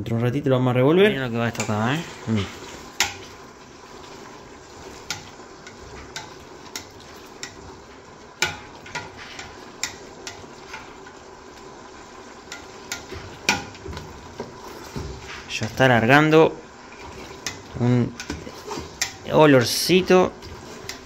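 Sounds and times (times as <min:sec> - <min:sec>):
onions sizzling in oil: 0:01.0 - 0:21.0
spatula knocking and scraping pot: 0:02.5 - 0:03.4, 0:04.7 - 0:11.1, 0:12.4 - 0:15.6, 0:17.0 - 0:21.0.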